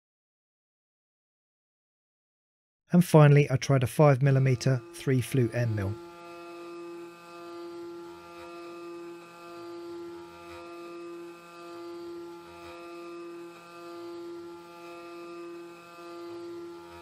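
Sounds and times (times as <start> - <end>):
spindle whine milling metal: 4.2 - 17.0.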